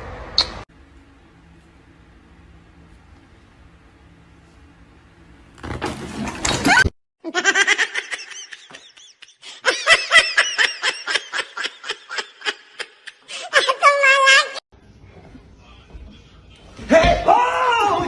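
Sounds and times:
person laughing hard: 6.7s - 14.0s.

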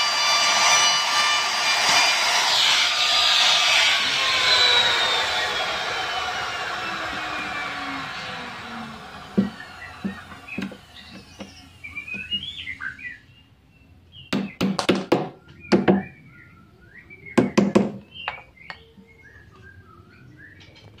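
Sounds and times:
power tool spinning down: 0.0s - 13.3s
birds chirping: 2.8s - 21.0s.

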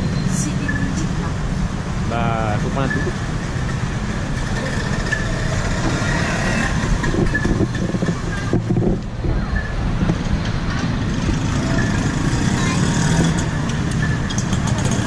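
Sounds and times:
street traffic: 0.0s - 15.0s.

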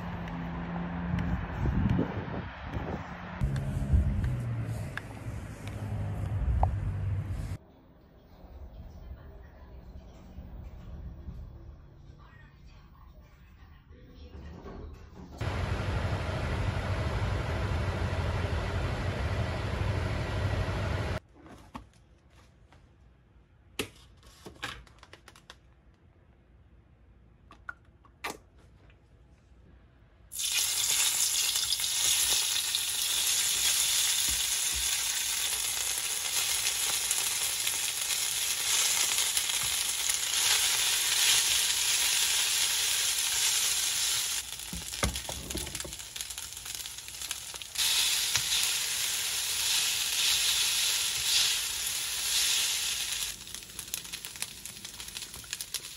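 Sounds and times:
noodles sizzling in oil: 30.3s - 55.9s.

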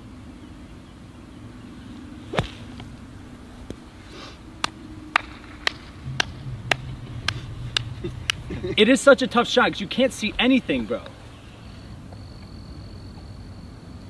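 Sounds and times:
faint steady hum: 0.0s - 14.0s
golf club striking sand: 2.2s - 3.9s.

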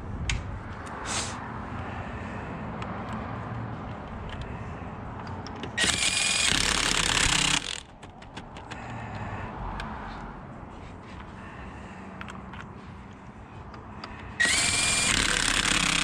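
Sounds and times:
impact wrench running: 5.8s - 7.9s, 14.4s - 16.0s.

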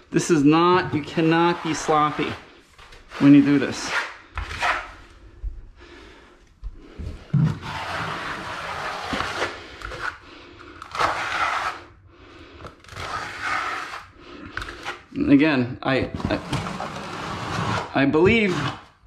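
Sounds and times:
trowel scraping tile adhesive: 0.7s - 5.0s, 7.4s - 10.2s, 10.8s - 12.0s, 12.6s - 15.2s, 16.0s - 19.0s.

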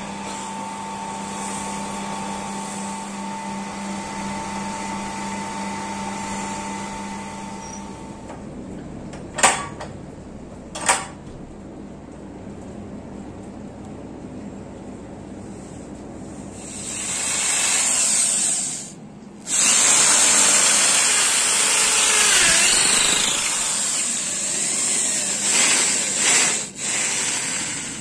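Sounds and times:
electric drill boring into wood: 16.6s - 18.9s, 19.5s - 28.0s.

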